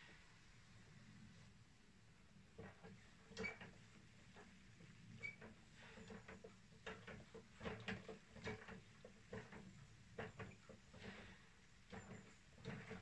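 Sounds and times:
faint clicks and taps: 2.6 - 13.0.

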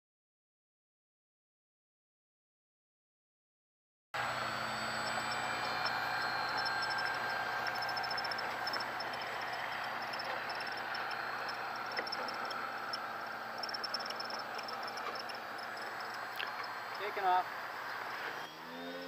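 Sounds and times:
insects chirping: 4.6 - 18.5
broad outdoor hiss: 9.3 - 18.4.

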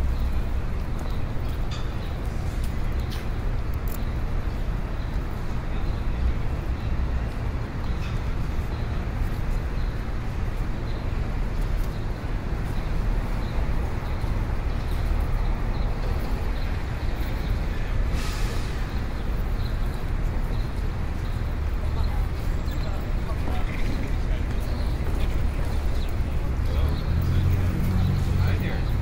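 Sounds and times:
low traffic rumble: 0.0 - 29.0
short hiss: 18.2 - 18.8.

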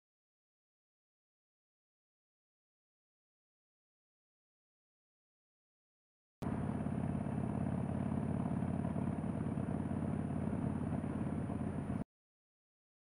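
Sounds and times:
motorcycle engine running: 6.4 - 12.0.

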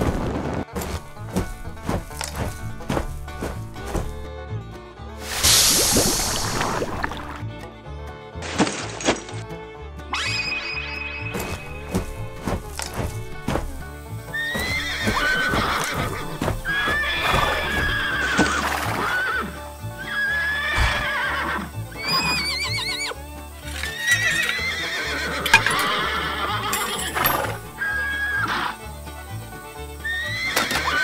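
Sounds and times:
background music: 0.0 - 31.0
horse neighing: 14.3 - 23.2, 23.8 - 28.8, 30.0 - 31.0.

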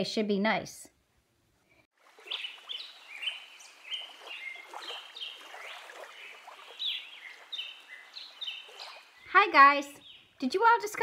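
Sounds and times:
many birds chirping: 2.2 - 10.3.

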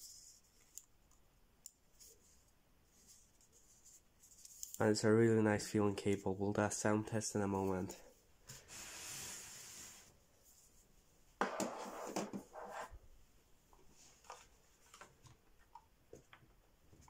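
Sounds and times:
rustling scrape: 8.5 - 10.7.

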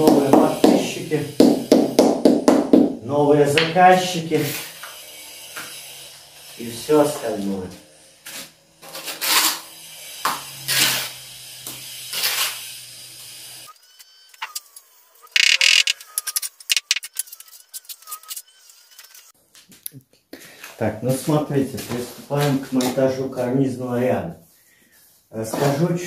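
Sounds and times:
hammer knocking on bricks: 0.0 - 3.0.

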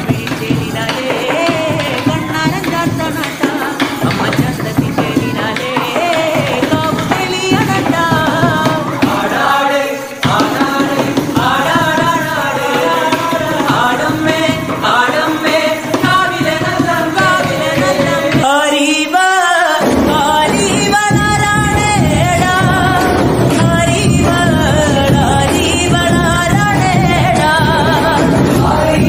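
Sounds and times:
crowd noise: 0.0 - 29.0
people singing ritual songs: 0.0 - 29.0.

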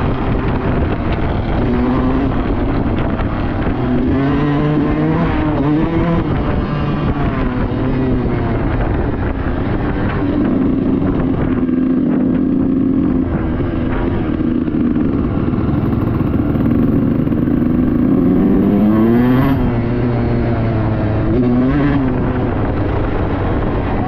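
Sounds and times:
dirt bike engine revving: 0.0 - 24.0.

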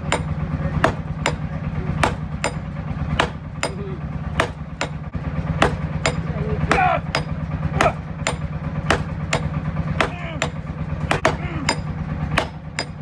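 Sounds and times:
hammer striking hot steel on anvil: 0.0 - 13.0
low steady hum: 0.0 - 13.0.

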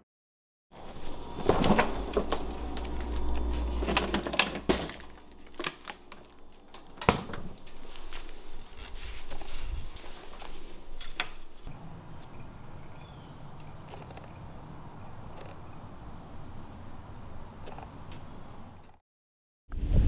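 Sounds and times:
handling rustles and clicks: 1.1 - 12.4, 13.6 - 14.4
refrigerator door closing: 1.4 - 5.2, 6.9 - 7.6.

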